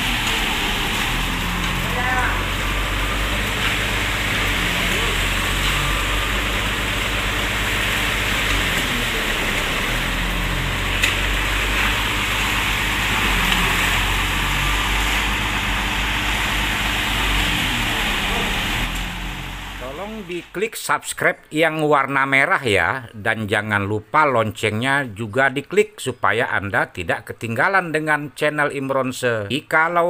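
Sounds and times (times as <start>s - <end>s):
diesel engine droning: 0.0s - 20.6s.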